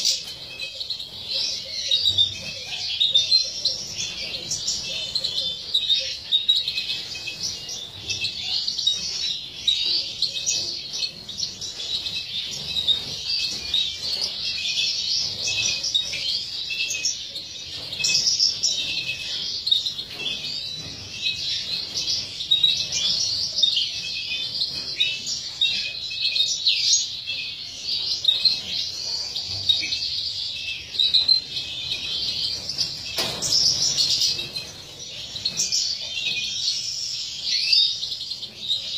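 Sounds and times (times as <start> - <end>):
finches twittering and singing: 0.0 - 38.9.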